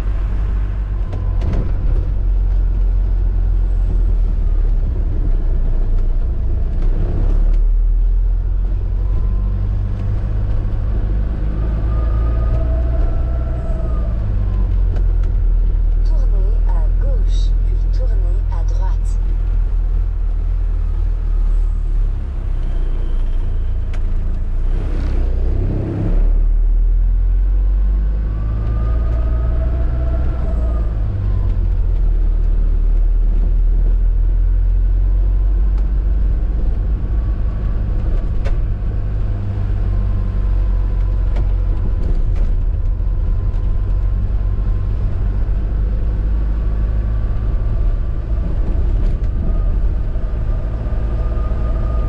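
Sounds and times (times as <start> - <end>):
motorhome engine and road rumble: 0.0 - 52.0.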